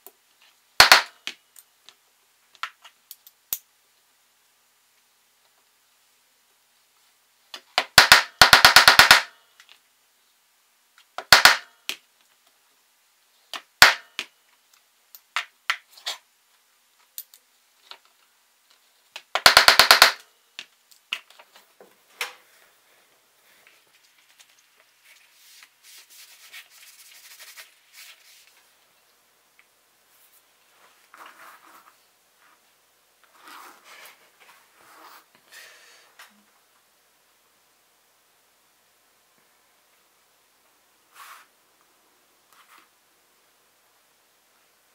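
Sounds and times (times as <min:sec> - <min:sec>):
leather rustling and scraping: 0:33.3 - 0:34.2.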